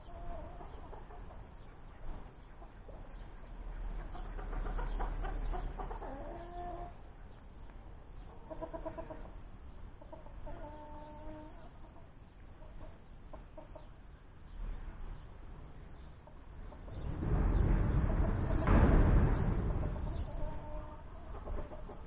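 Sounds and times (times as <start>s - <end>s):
chickens clucking and calling: 0.0s - 22.0s
wind rumble on microphone: 14.5s - 22.0s.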